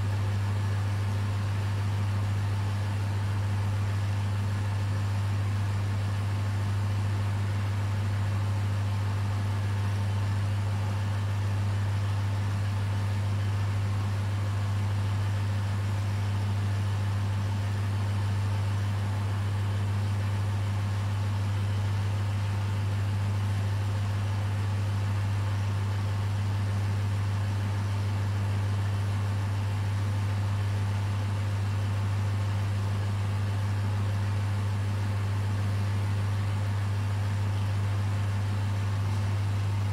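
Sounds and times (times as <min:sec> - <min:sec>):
aquarium pumps humming: 0:00.0 - 0:39.9.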